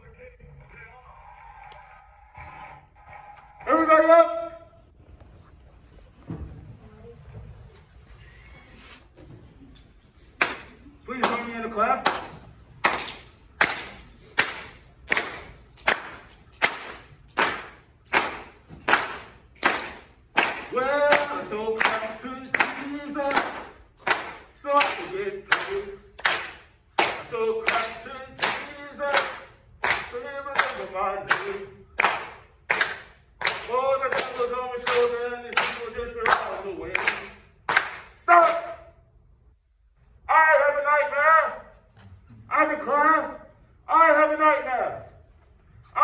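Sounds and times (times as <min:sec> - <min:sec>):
rhythmic hand claps: 0:10.4 - 0:38.8.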